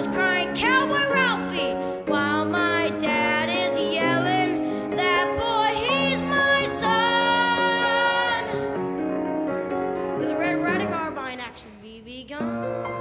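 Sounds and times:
boy singing: 0:00.0 - 0:08.6
musical accompaniment: 0:00.0 - 0:11.7, 0:12.3 - 0:13.0.

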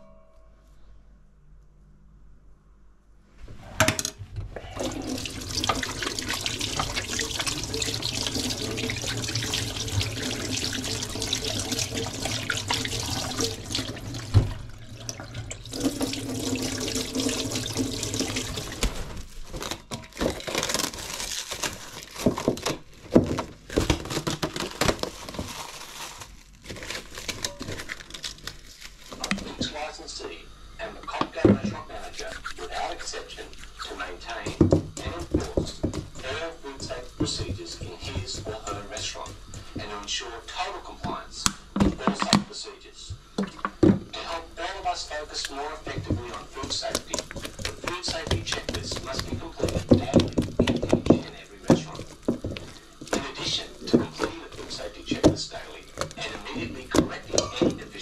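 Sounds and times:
tap water running into sink: 0:04.7 - 0:19.2, 0:34.3 - 0:42.5, 0:43.2 - 0:58.0.

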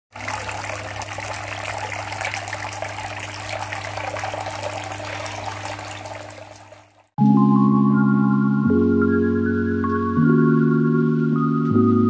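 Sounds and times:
water fountain trickling: 0:00.1 - 0:07.2.

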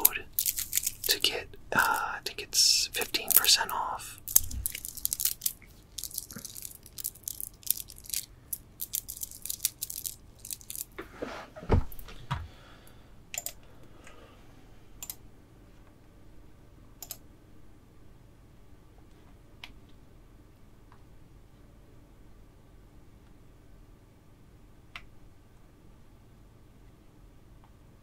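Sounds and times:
stone beads clicking together: 0:00.0 - 0:11.0
dull thump: 0:11.6 - 0:12.4.

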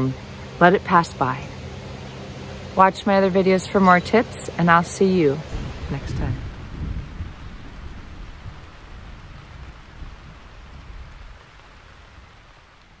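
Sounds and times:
steady rain falling: 0:00.0 - 0:13.0
low thunder rumble: 0:05.4 - 0:12.7.

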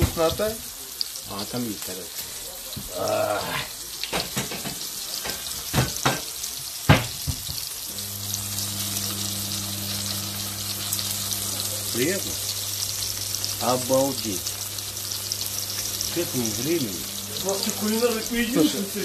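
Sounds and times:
pork chops sizzling in oil: 0:00.0 - 0:19.0
steady low hum: 0:07.9 - 0:13.6, 0:14.4 - 0:18.6.

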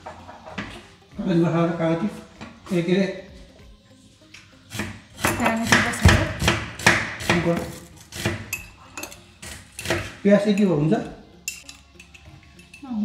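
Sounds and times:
knife chopping on cutting board: 0:04.7 - 0:08.5, 0:09.4 - 0:10.2.

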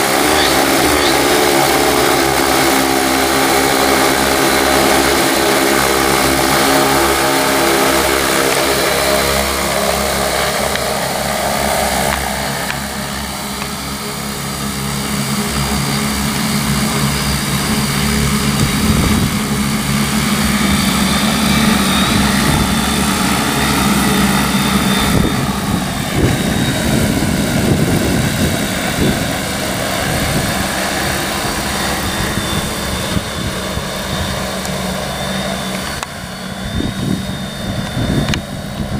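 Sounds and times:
drone rotors buzzing: 0:00.0 - 0:38.9
gusty low rumble: 0:18.3 - 0:21.2, 0:21.9 - 0:23.4, 0:24.1 - 0:34.6.

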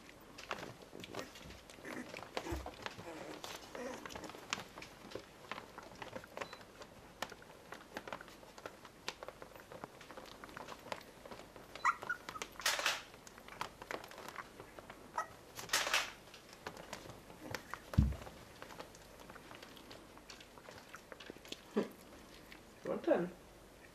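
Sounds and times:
puppies scratching on a blanket: 0:00.0 - 0:23.9
puppy squeaks: 0:11.8 - 0:12.6, 0:15.1 - 0:15.4.

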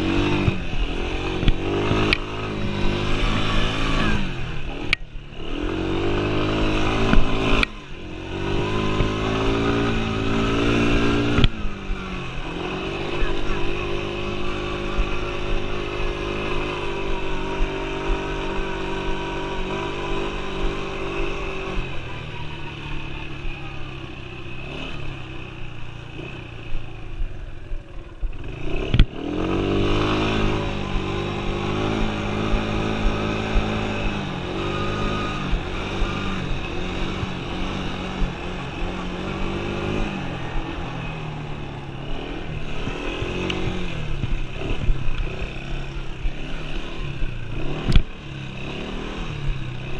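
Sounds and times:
quad engine revving: 0:00.0 - 0:49.9.

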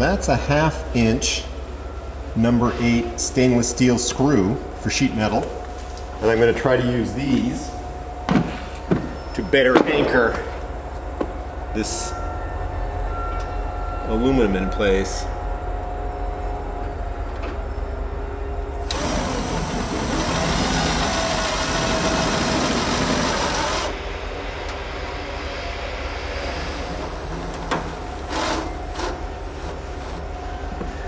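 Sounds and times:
cordless drill whining: 0:18.8 - 0:24.0, 0:26.2 - 0:30.2.

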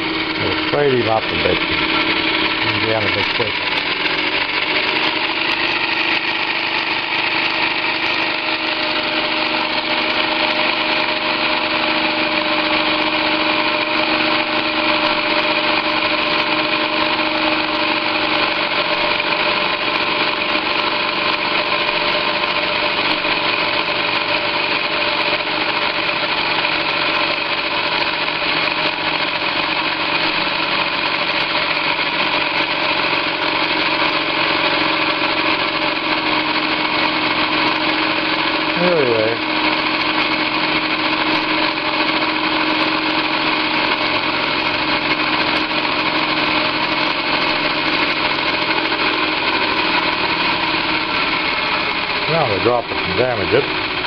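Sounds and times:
steam engine hissing and whirring: 0:23.0 - 0:54.0.

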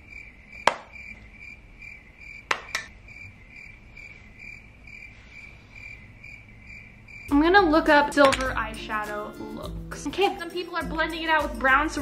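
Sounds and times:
cricket chirping: 0:00.0 - 0:07.4.

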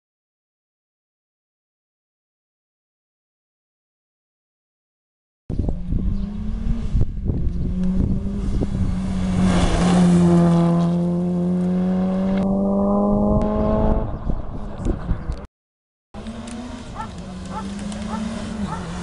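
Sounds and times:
rally car engine passing at speed: 0:05.7 - 0:14.8, 0:16.2 - 0:19.0.

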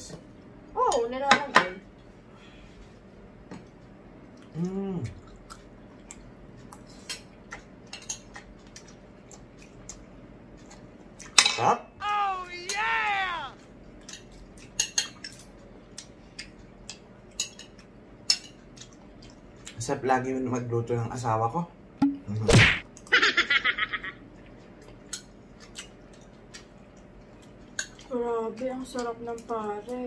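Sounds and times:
high-pitched vocal sound: 0:12.0 - 0:13.6
person humming: 0:12.0 - 0:13.6.

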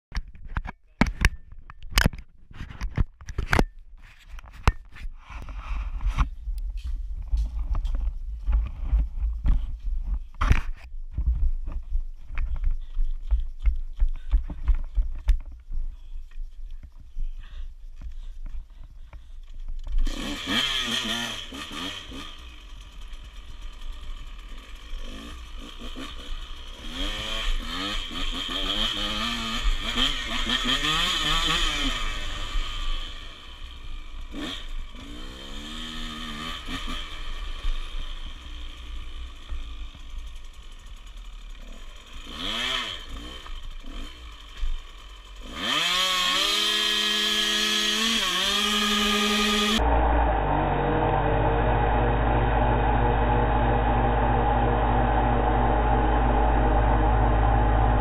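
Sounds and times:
dirt bike engine revving: 0:20.0 - 0:58.0.

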